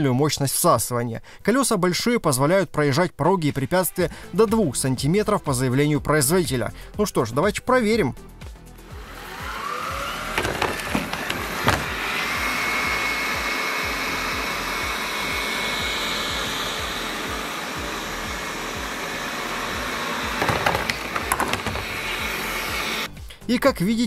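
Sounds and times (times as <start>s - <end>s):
robot vacuum whirring: 8.8s - 23.1s
knocks over threshold strip: 10.4s - 12.0s, 20.4s - 22.0s.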